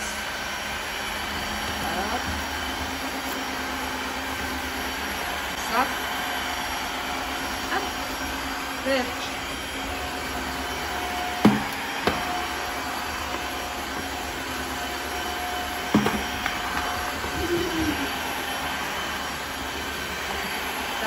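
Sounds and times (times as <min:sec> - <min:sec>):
floor washer vacuum whining: 0:00.0 - 0:21.0
sharp knocks: 0:11.4 - 0:12.3, 0:15.9 - 0:16.5.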